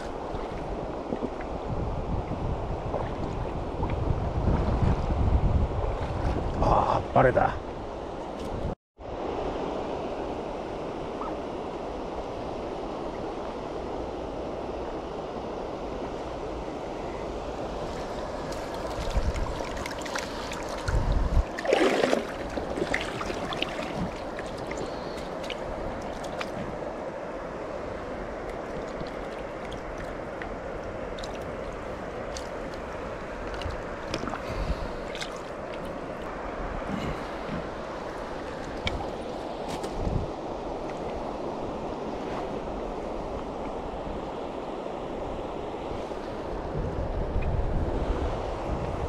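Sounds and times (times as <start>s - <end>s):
river current rushing: 9.0s - 49.0s
splashes and knocks: 18.5s - 26.8s, 28.5s - 30.5s, 31.1s - 36.0s, 36.9s - 40.2s.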